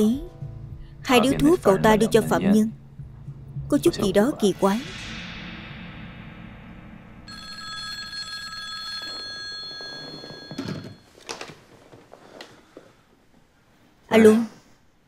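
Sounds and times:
telephone bell ringing: 0:07.3 - 0:11.2.

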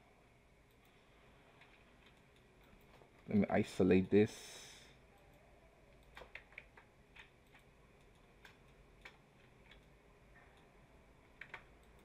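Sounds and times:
computer mouse and keyboard clicks: 0:01.6 - 0:04.2, 0:05.2 - 0:10.7, 0:11.3 - 0:12.0.

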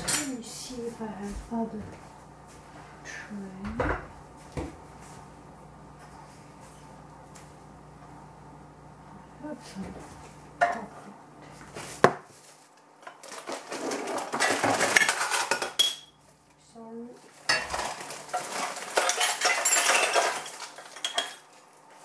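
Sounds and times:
baking pans clattering: 0:13.0 - 0:16.2, 0:17.4 - 0:21.5.

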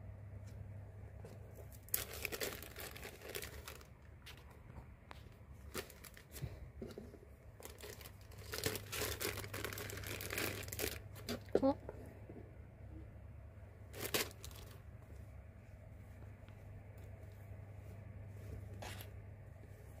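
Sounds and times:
plastic bag crinkling: 0:01.7 - 0:04.5, 0:05.6 - 0:06.5, 0:07.6 - 0:11.6, 0:13.9 - 0:14.8.

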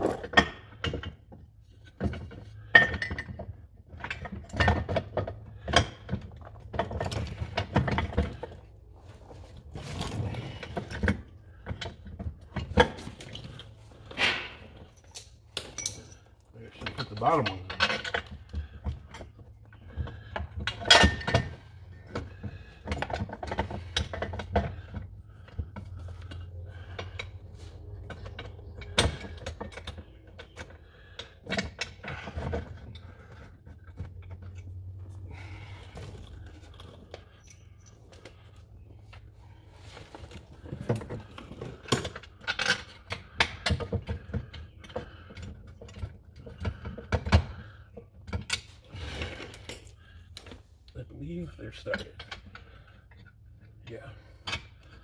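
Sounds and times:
metallic clinks of bolts and tools: 0:14.2 - 0:18.3, 0:37.1 - 0:38.3.

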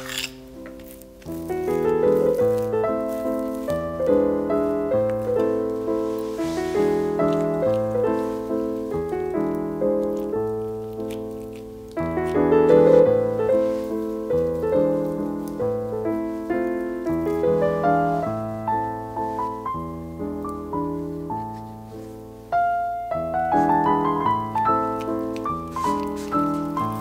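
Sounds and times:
piano playing: 0:00.0 - 0:27.0.

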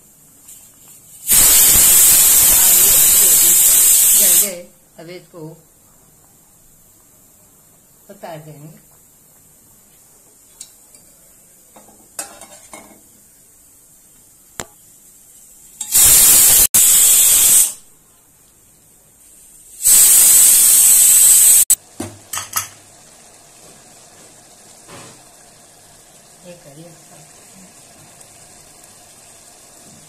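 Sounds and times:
loud hisses: 0:01.2 - 0:04.6, 0:15.9 - 0:17.8, 0:19.6 - 0:21.8.

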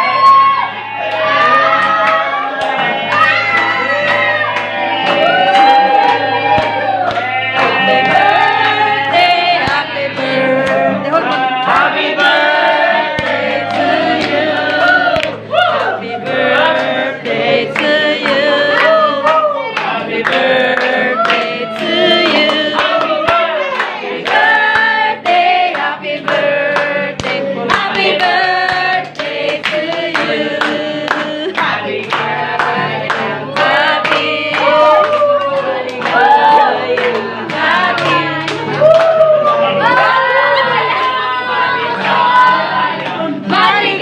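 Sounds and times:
voices singing together: 0:00.0 - 0:44.0.

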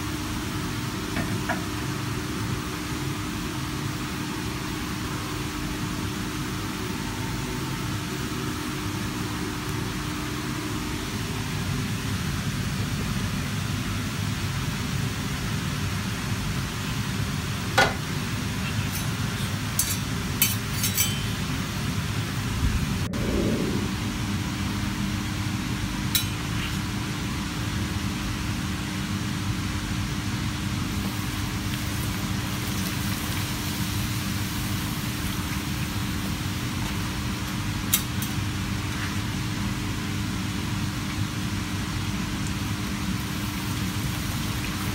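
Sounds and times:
kitchen ventilation hum: 0:00.0 - 0:44.9
gas burners roaring: 0:17.2 - 0:25.5.

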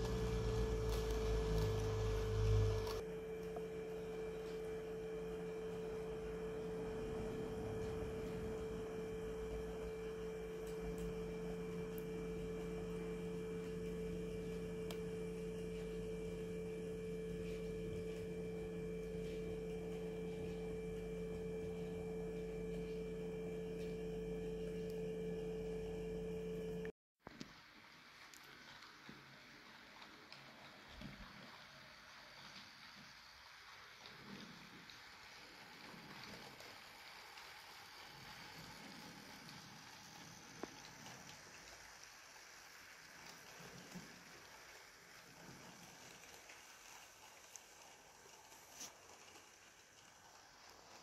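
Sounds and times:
electric hum: 0:00.0 - 0:26.9.

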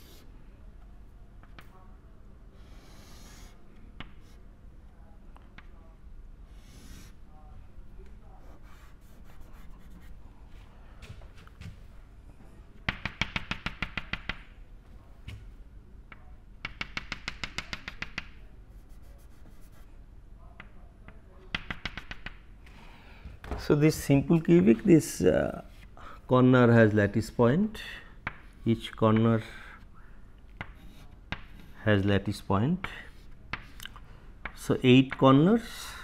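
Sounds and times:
chalk tapping on blackboard: 0:12.9 - 0:14.4, 0:16.6 - 0:19.8, 0:21.5 - 0:22.4, 0:30.6 - 0:31.7.

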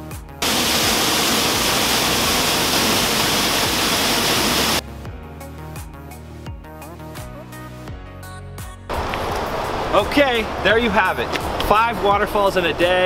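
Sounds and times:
waterfall roaring: 0:00.4 - 0:04.8, 0:08.9 - 0:11.6
background music: 0:04.4 - 0:08.9.

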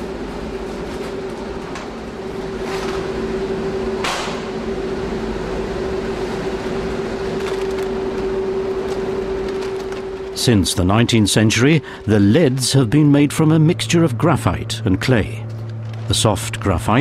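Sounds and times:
factory machinery humming: 0:00.0 - 0:17.0
paper sacks rustling: 0:07.3 - 0:10.4.

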